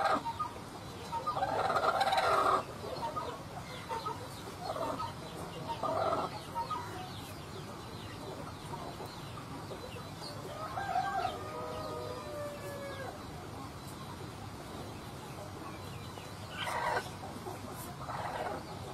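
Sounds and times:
chickens clucking: 0.0s - 18.9s
rooster crowing: 10.5s - 13.2s.

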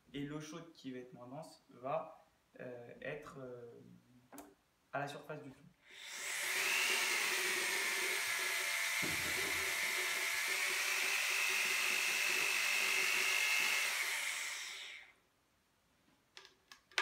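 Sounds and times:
electric drill whining: 5.9s - 15.2s
low knock: 9.0s - 9.8s.

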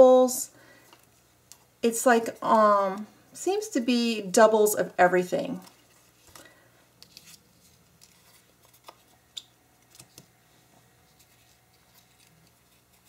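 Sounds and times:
paper rustling: 7.1s - 9.2s, 11.1s - 13.0s.

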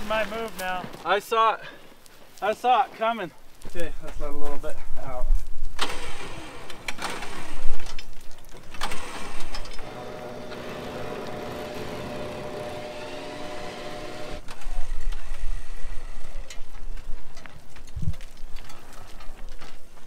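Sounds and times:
rustling: 0.0s - 12.8s
winch motor running: 8.8s - 15.5s.

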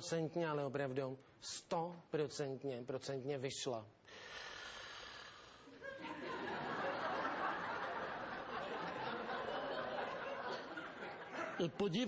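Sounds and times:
audience laughing: 5.8s - 11.9s.

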